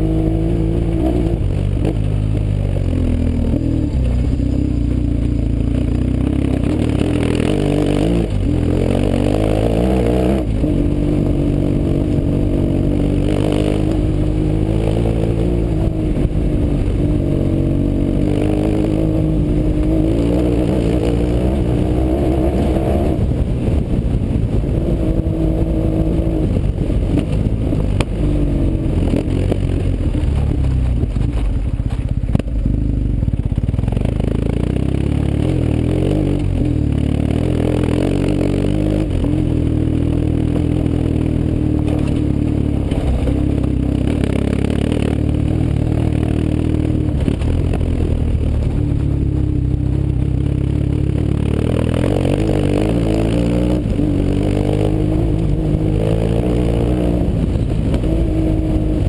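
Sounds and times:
motorcycle engine revving: 0.0 - 59.0
gravel crunching under tyres: 19.1 - 36.9, 39.0 - 59.0.

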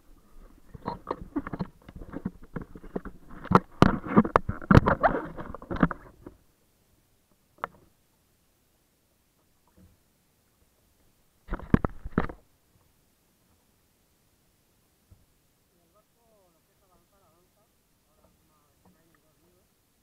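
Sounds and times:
water splashing against camera: 0.1 - 6.4, 11.4 - 12.5
camera handling knocks and rubbing: 0.8 - 6.3.

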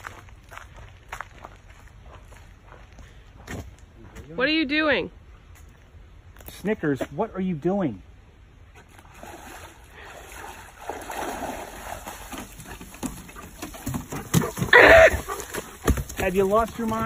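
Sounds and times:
dog splashing in water: 9.1 - 17.0
paws clattering on wooden boardwalk: 11.8 - 17.0
high-pitched cry: 14.7 - 15.2.

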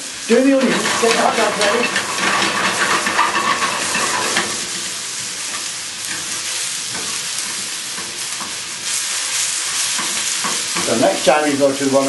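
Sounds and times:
onions sizzling in a frying pan: 0.0 - 12.0
utensil scraping a pan: 0.3 - 11.4.

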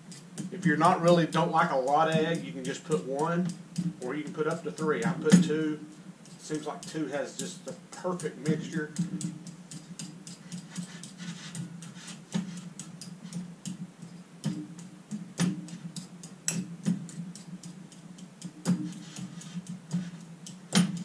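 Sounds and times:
steady low hum: 0.0 - 21.0
fork scraping against bowl: 5.6 - 14.6.

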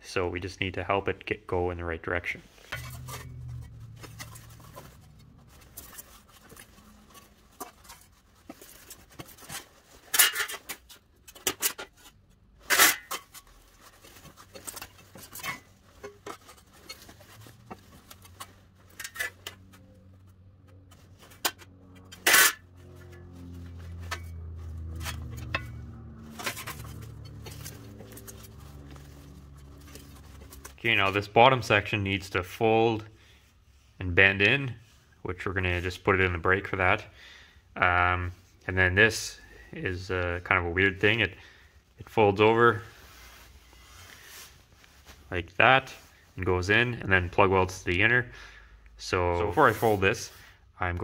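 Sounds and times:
low steady hum: 2.5 - 35.3
metallic clanks of sheet steel: 2.7 - 4.8, 10.0 - 12.1, 12.7 - 13.4, 21.4 - 28.4.

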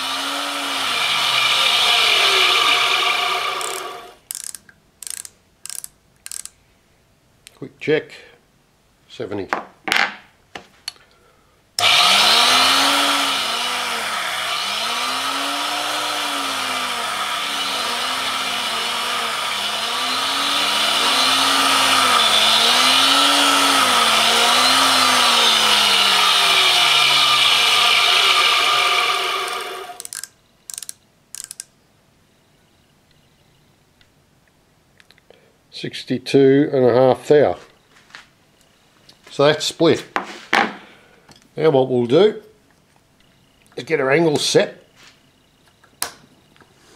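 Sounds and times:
grinder wheel grinding rod: 0.0 - 6.5, 11.8 - 31.6.

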